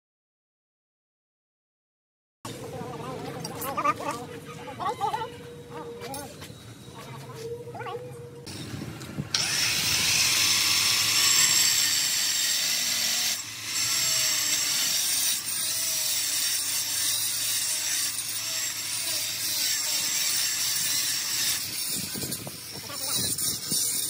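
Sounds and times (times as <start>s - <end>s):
angle grinder grinding stone: 9.4s - 24.0s.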